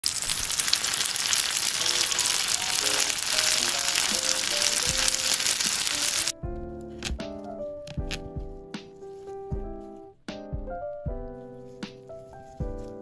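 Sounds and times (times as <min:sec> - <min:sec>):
food sizzling in hot oil: 0:00.0 - 0:06.3
soft background music: 0:01.8 - 0:13.0.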